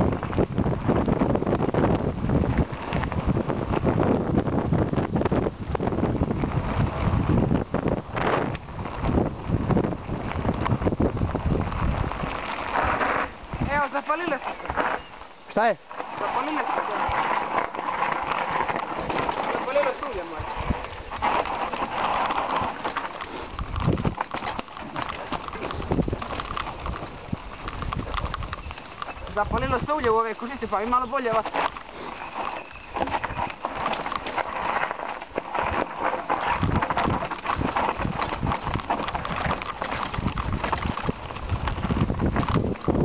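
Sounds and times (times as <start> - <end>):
bike tyres on dirt and stones: 0.0 - 43.0
bike clattering: 16.0 - 43.0.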